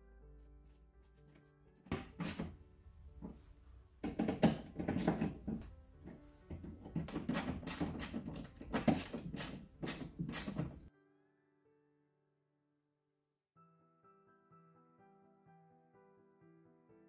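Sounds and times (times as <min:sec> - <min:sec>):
background music: 0:00.0 - 0:12.0.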